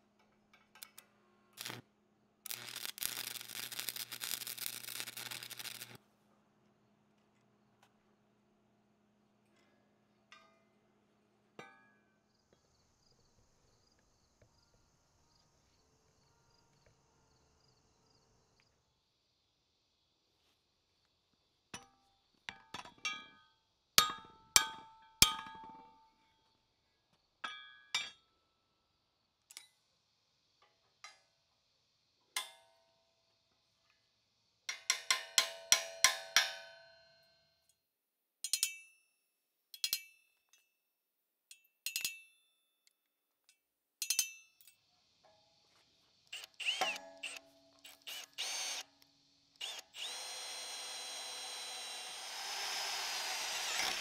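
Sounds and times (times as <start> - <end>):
crickets chirping: 12.3 - 22.4, 44.7 - 52.7
hammer striking steel: 34.7 - 36.9.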